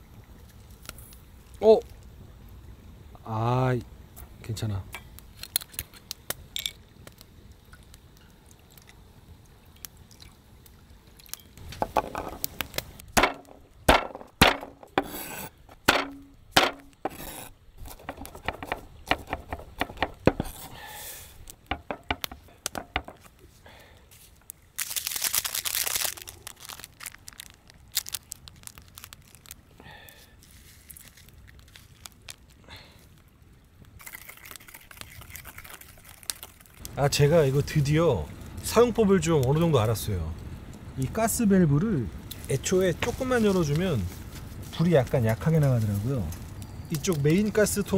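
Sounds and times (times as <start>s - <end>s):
camp cooking gear clicks and knocks: 4.9s - 7.3s, 11.3s - 15.1s, 15.7s - 17.2s, 17.8s - 20.7s, 21.5s - 23.4s.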